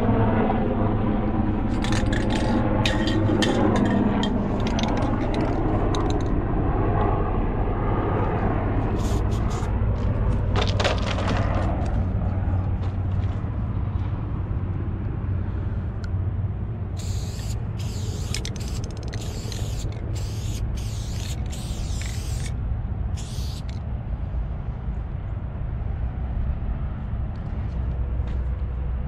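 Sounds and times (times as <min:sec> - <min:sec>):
steady low rumble: 0:00.0 - 0:29.0
spray can hissing: 0:09.0 - 0:09.7, 0:17.0 - 0:22.5, 0:23.2 - 0:23.8.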